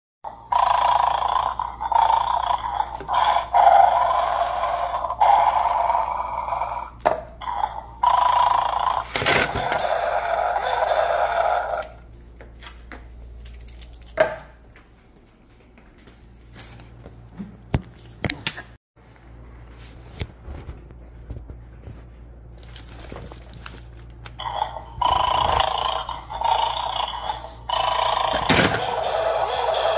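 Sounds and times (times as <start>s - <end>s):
toy dog growling through speaker: 0.2s - 12.0s, 24.4s - 29.9s.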